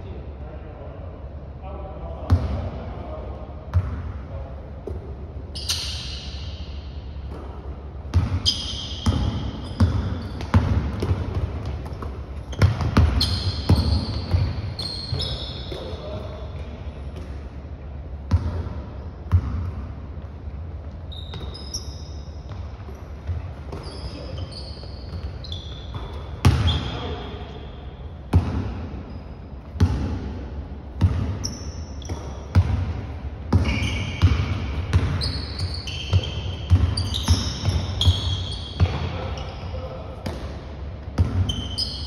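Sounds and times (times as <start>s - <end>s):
sneakers squeaking on floor: 4.8s - 17.5s, 18.3s - 30.2s, 31.0s - 42.0s
basketball bouncing on hardwood floor: 8.1s - 8.4s, 9.0s - 15.8s, 32.1s - 35.3s, 36.1s - 39.1s.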